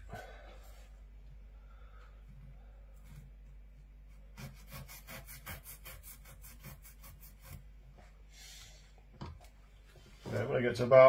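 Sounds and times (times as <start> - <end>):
knife rasping through fish skin: 4.1 - 7.7.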